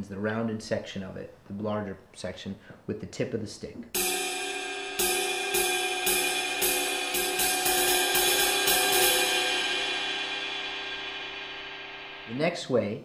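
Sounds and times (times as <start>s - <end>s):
cymbal ringing: 4.0s - 12.8s
drumstick striking cymbal: 4.0s - 13.0s.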